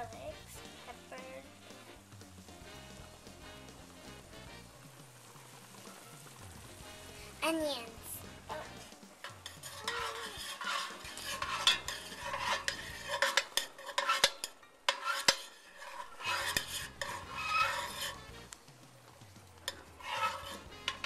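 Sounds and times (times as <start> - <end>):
vegetables sizzling in oil: 0.0 - 21.0
metal spoon scraping a pan: 8.1 - 18.6, 19.6 - 21.0.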